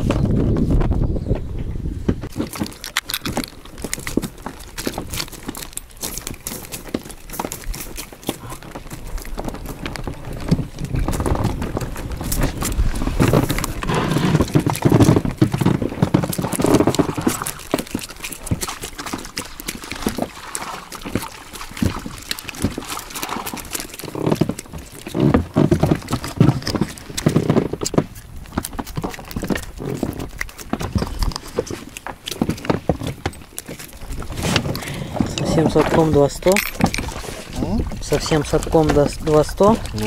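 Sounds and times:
wind on microphone: 0.0 - 5.8, 7.2 - 18.8, 32.5 - 40.0.

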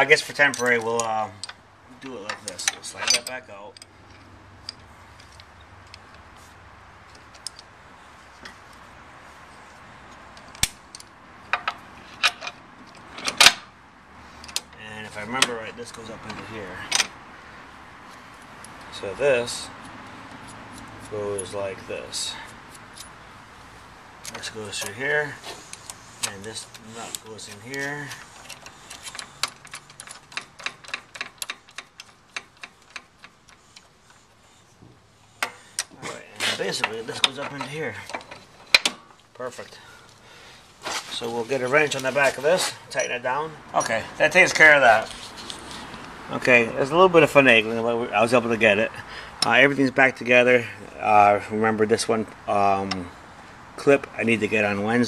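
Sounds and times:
metal parts clinking on steel: 0.2 - 1.6, 2.2 - 6.0, 25.6 - 33.8
metal clicks and taps: 0.5 - 1.6, 2.3 - 6.2, 25.7 - 33.9.

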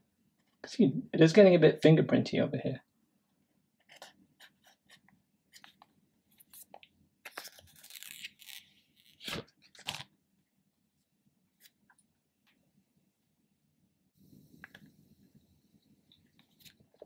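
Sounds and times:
protective film peeling: 7.3 - 10.1.

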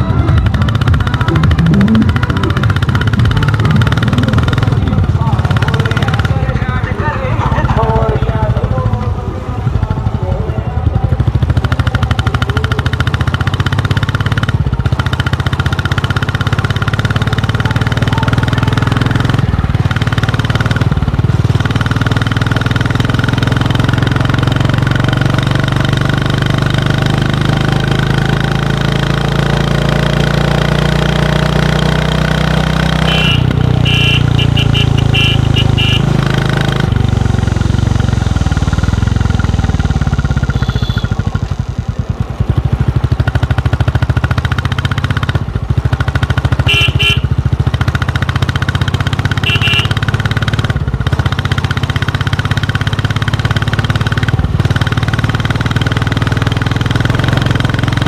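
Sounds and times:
motorcycle engine running: 0.0 - 58.0
short high beeps: 1.3 - 2.7.

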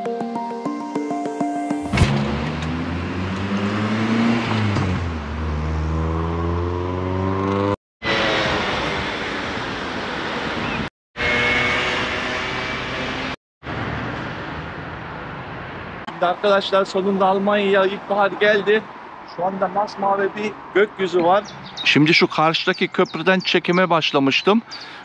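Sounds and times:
vehicle engine accelerating: 1.9 - 15.7
rush of passing traffic: 2.0 - 23.8.

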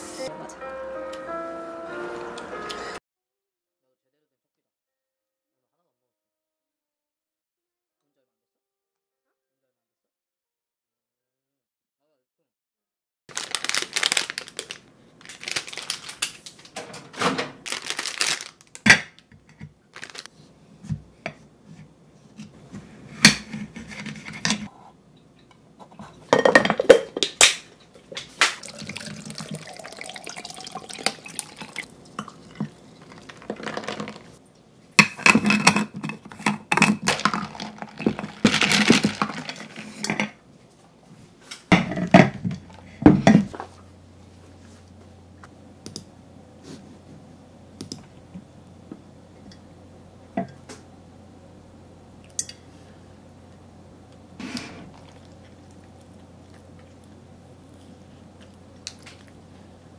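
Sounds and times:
plastic bag rustling: 13.3 - 18.8, 19.9 - 20.3, 32.7 - 34.4, 36.8 - 40.0
dishes clinking on countertop: 26.2 - 27.4
liquid being poured: 28.4 - 34.4.

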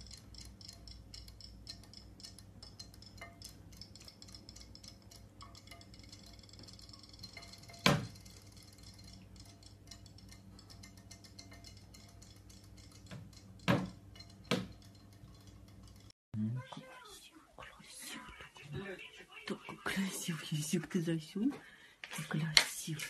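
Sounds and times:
light ticking: 0.0 - 16.2
faint steady hum: 0.0 - 23.0.

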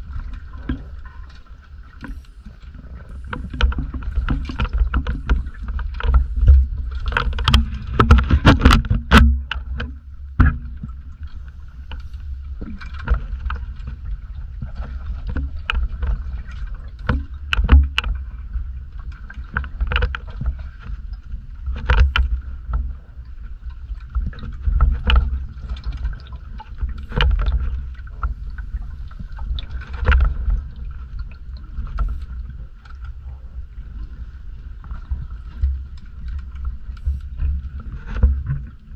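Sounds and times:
underwater rumble: 0.0 - 38.9
sharp underwater clicks: 3.0 - 10.9.

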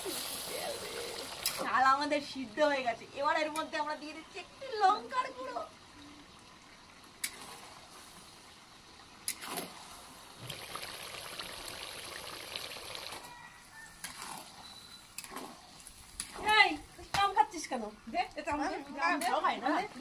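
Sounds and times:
wet sizzling and scraping: 7.2 - 8.6, 11.5 - 20.0.

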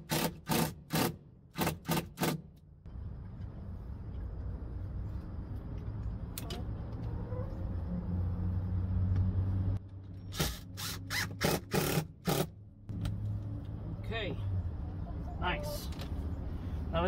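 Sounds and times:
cordless drill driving screws: 10.3 - 12.5.

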